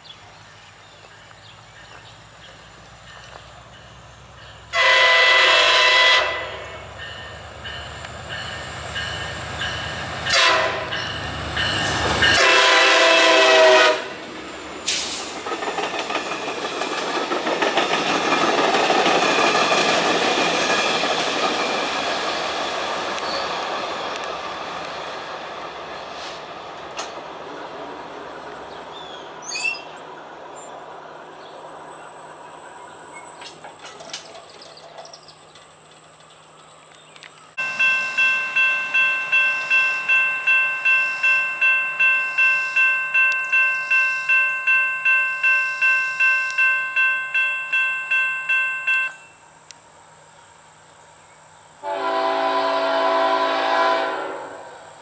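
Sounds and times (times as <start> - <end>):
train horn blasts: 4.7 - 7.2, 10.2 - 11.2, 12.2 - 14.2, 51.8 - 54.9
train wheels clattering on rails: 7.0 - 28.8, 33.2 - 43.7.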